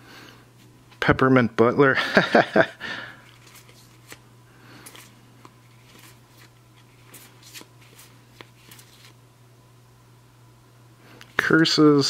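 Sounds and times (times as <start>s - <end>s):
low steady hum: 0.0s - 12.0s
game cards clicking and rustling: 3.3s - 4.2s, 4.8s - 9.2s.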